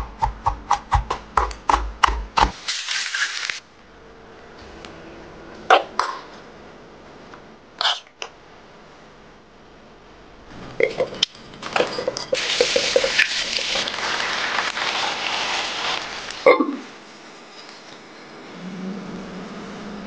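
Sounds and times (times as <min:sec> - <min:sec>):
hot oil sizzling: 0:12.4 - 0:16.5.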